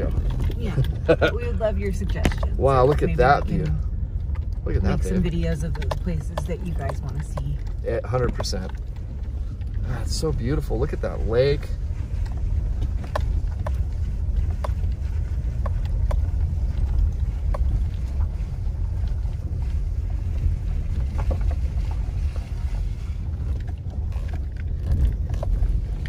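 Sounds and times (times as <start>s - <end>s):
low rumble of tyres: 0.0s - 26.0s.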